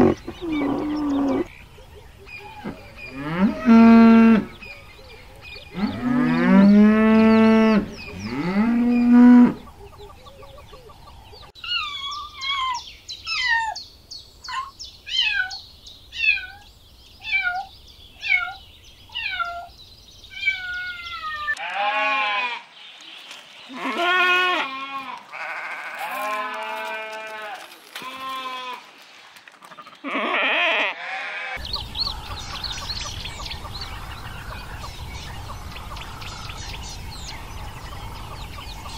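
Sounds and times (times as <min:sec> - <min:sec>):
cows mooing: 0:00.0 - 0:01.5, 0:02.6 - 0:04.6, 0:05.7 - 0:09.7
outdoor background noise: 0:00.0 - 0:38.9
animal bleating: 0:20.4 - 0:22.7, 0:23.7 - 0:28.9, 0:29.7 - 0:31.6.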